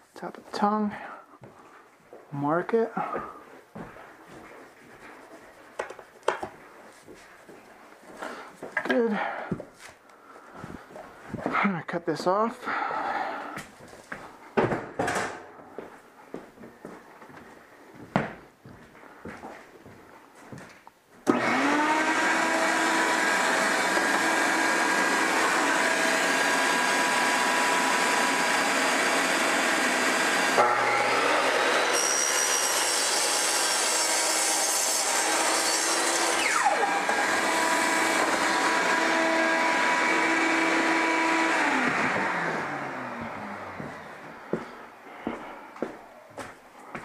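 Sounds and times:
miter saw whining: 21.3s - 44.5s.

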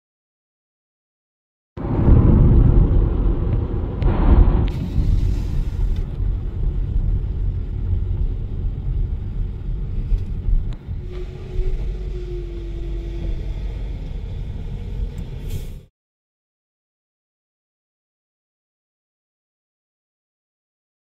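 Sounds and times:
garbage truck diesel engine rumbling: 1.8s - 15.9s.

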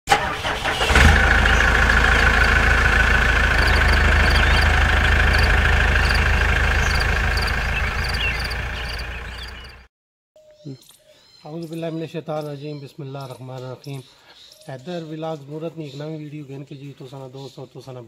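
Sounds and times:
engine idling: 0.1s - 9.9s.

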